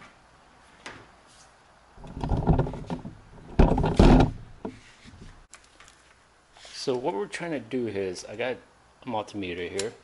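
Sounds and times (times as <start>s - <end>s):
plastic seat scraping and knocking: 2.0s - 4.8s.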